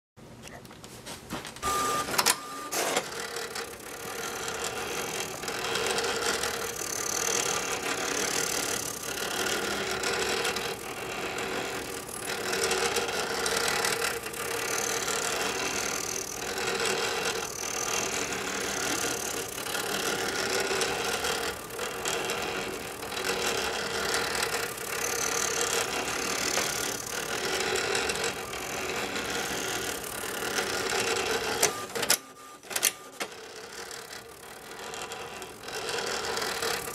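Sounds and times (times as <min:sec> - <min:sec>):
plotter motors whirring: 0:01.6 - 0:36.9.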